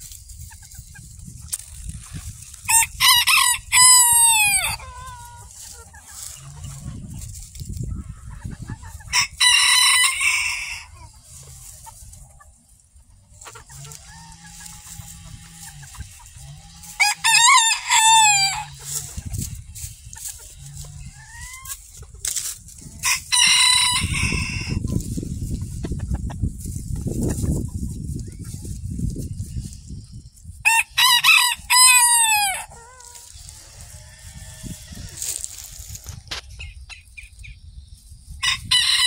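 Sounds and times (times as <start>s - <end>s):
roosters crowing: 2.2s - 7.4s, 8.0s - 25.2s, 30.6s - 36.3s, 38.4s - 39.0s.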